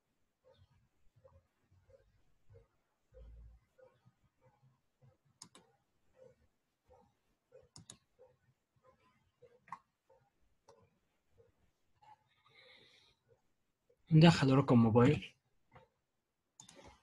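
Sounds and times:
computer mouse clicks: 0:05.4 - 0:08.3, 0:09.4 - 0:10.9, 0:16.6 - 0:17.0.

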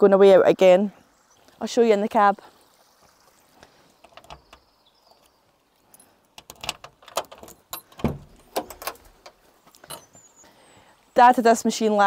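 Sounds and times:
door latch clicking and rattling: 0:04.1 - 0:04.6, 0:06.4 - 0:10.1.

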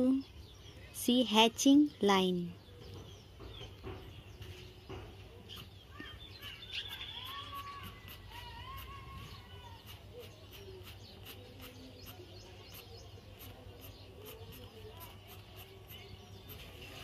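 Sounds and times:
birds chirping faintly: 0:00.0 - 0:17.0
pencil scratching on paper: 0:06.8 - 0:17.0.

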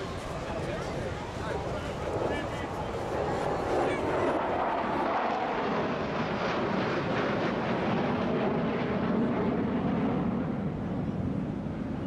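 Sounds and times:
jet engine roar overhead: 0:00.0 - 0:12.0.

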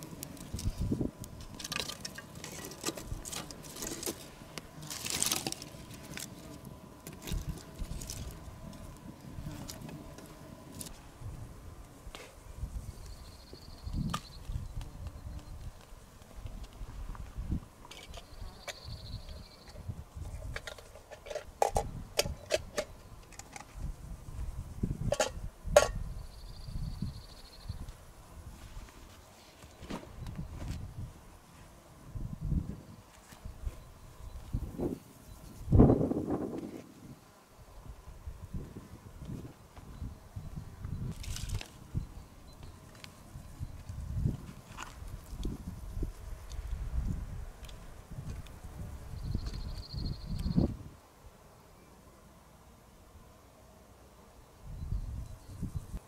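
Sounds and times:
twigs rustling and knocking: 0:00.0 - 0:11.0, 0:41.1 - 0:41.8
burning kindling crackling: 0:00.0 - 0:13.3.

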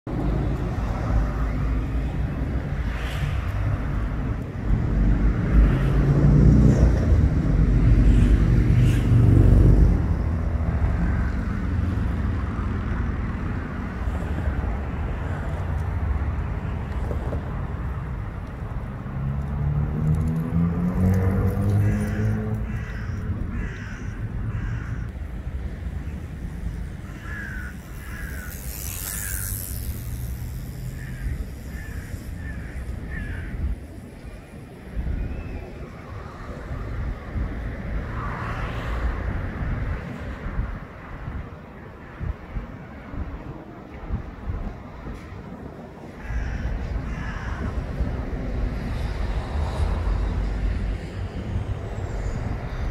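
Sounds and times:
low city rumble: 0:00.0 - 0:52.9
crow cawing: 0:21.8 - 0:25.1, 0:27.1 - 0:28.6, 0:30.9 - 0:33.6, 0:46.2 - 0:47.7.

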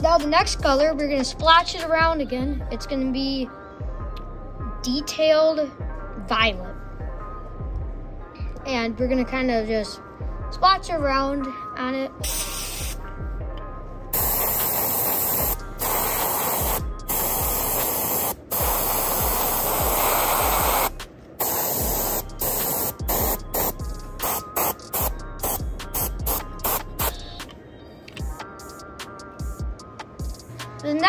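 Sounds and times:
airbrush spraying hissing bursts: 0:12.2 - 0:13.0, 0:14.2 - 0:27.2.

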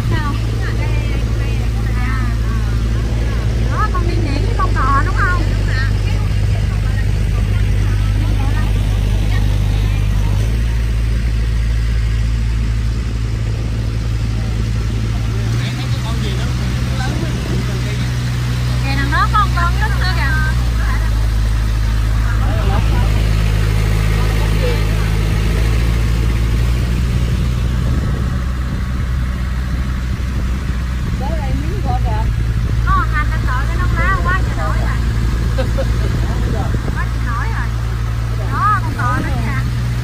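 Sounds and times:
motorboat engine droning: 0:00.0 - 0:40.0
water and wind hiss: 0:00.0 - 0:40.0.

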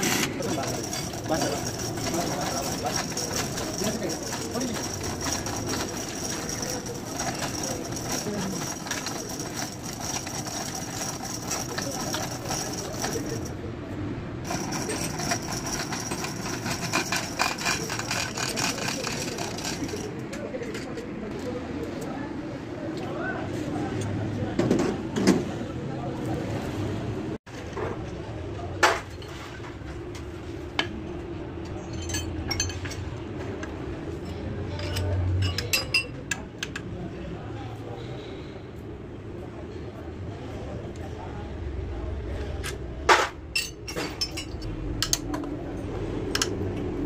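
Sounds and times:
chain hoist rattling and clinking: 0:00.0 - 0:13.6, 0:14.5 - 0:20.2.

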